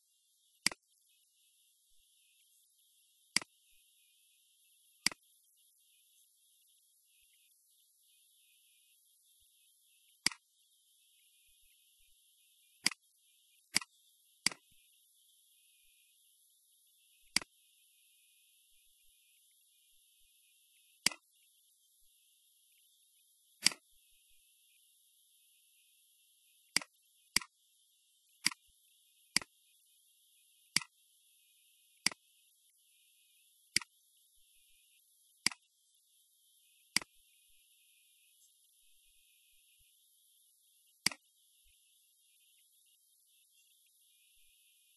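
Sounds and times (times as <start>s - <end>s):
faint steady hiss: 0.0s - 44.9s
computer mouse clicks: 0.6s - 0.8s, 3.3s - 3.6s, 5.0s - 5.3s, 10.2s - 10.4s, 12.8s - 13.0s, 13.7s - 14.8s, 17.2s - 17.5s, 21.0s - 21.3s, 23.6s - 23.9s, 26.7s - 27.5s, 28.4s - 28.7s, 29.3s - 29.6s, 30.7s - 31.0s, 32.0s - 32.3s, 33.7s - 34.0s, 35.4s - 35.7s, 36.9s - 37.2s, 41.0s - 41.3s.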